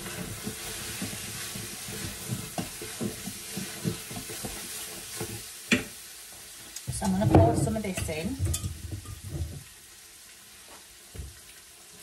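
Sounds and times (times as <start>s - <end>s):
utensil stirring strokes: 0.0s - 5.6s
garlic sizzling: 0.0s - 12.0s.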